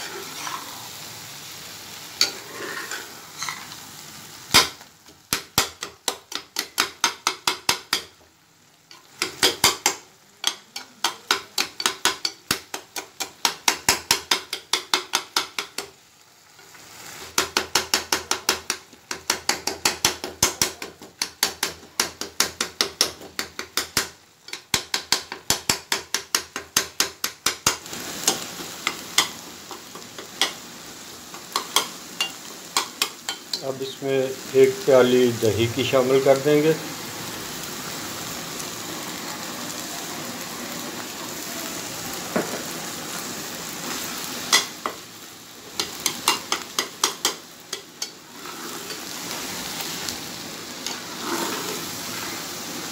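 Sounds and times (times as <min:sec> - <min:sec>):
food sizzling: 0:00.0 - 0:52.9
metal spatula clacking in pan: 0:04.5 - 0:08.2, 0:08.9 - 0:16.0, 0:17.3 - 0:30.6, 0:31.3 - 0:33.6, 0:44.5 - 0:45.0, 0:45.8 - 0:48.2.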